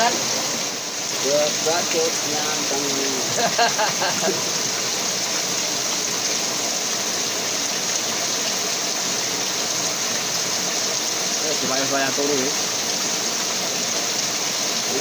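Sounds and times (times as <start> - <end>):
stream rushing: 0.0 - 15.0
person speaking: 1.2 - 3.4, 11.4 - 12.6.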